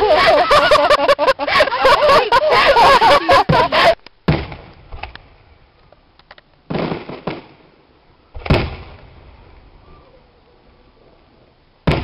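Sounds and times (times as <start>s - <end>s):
firework bangs: 3.3s - 5.4s, 6.7s - 9.8s
firework crackles: 3.6s - 12.0s.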